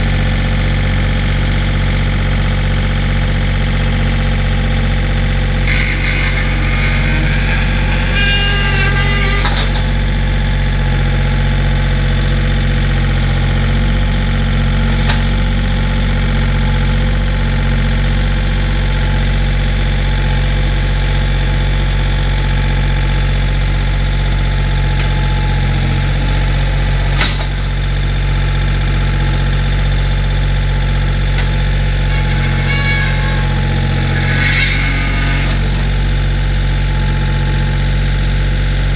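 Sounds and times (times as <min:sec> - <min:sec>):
tractor diesel engine running: 0:00.0 - 0:38.9.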